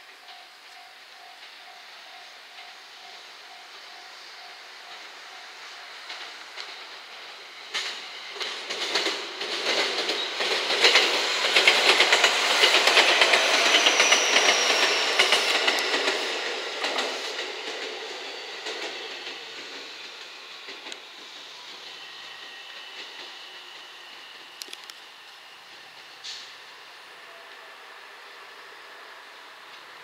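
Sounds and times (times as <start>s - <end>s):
train wheels clattering over rail joints: 5.8s - 24.9s.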